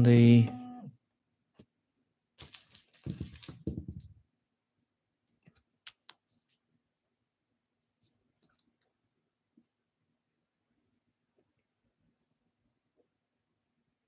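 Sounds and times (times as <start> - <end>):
rustling handling noise: 2.4 - 4.2.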